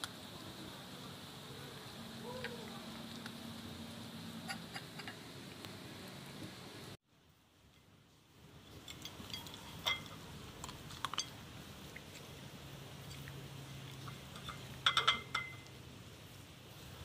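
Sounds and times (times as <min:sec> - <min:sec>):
faint steady hum: 0:00.0 - 0:17.0
food bowl clinking: 0:08.8 - 0:11.4, 0:14.0 - 0:15.8.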